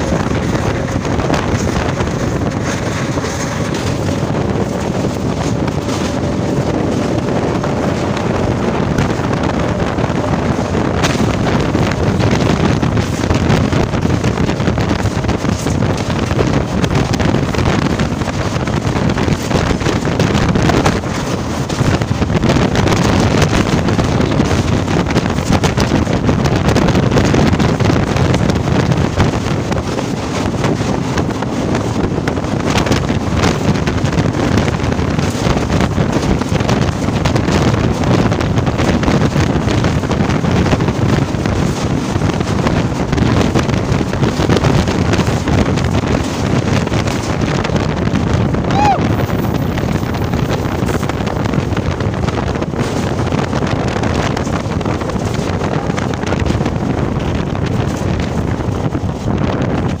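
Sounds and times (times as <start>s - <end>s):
train rumbling: 0.0s - 60.0s
wind buffeting microphone: 0.0s - 60.0s.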